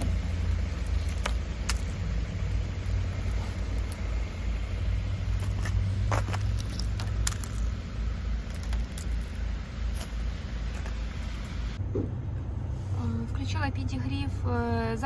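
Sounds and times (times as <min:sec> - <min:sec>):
ice crackling and snapping: 0:00.0 - 0:04.6, 0:05.2 - 0:11.0
steady low rumble: 0:00.0 - 0:15.0.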